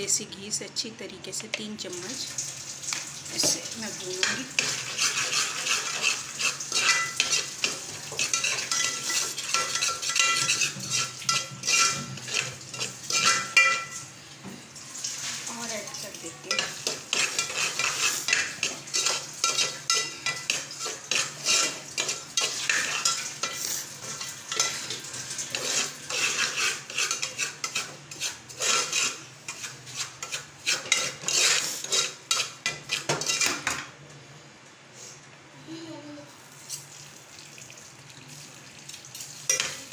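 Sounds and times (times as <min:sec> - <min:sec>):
metal spoon scraping pot: 0:04.2 - 0:14.0, 0:16.5 - 0:33.8, 0:39.4 - 0:39.9.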